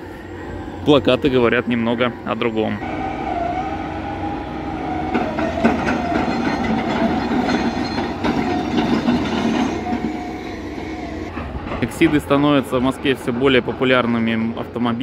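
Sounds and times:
construction machinery din: 0:00.0 - 0:15.0
wavering machine whine: 0:00.0 - 0:15.0
metallic clanks: 0:05.1 - 0:12.2.

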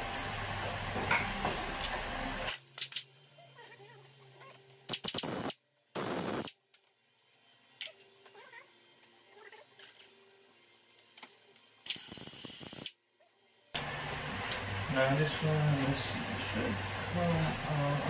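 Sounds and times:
pneumatic air ratchet bursts: 0:04.9 - 0:06.6, 0:11.8 - 0:13.0.

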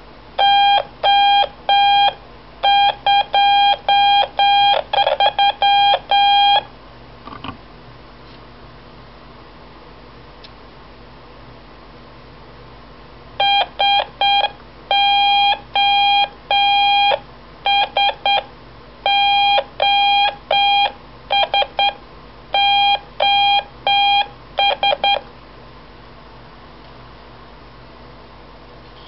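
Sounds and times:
morse code beeps: 0:00.4 - 0:06.6, 0:13.4 - 0:18.4, 0:19.1 - 0:22.0, 0:22.6 - 0:25.2.

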